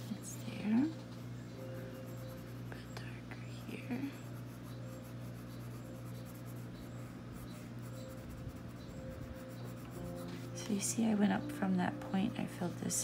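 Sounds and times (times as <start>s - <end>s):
steady low hum: 0.0s - 13.0s
pencil scratching on paper: 1.7s - 10.8s.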